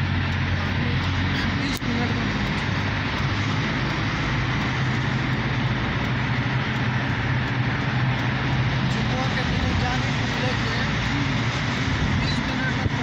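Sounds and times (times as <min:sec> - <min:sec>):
car engine hum: 0:00.0 - 0:13.0
road noise: 0:00.0 - 0:13.0.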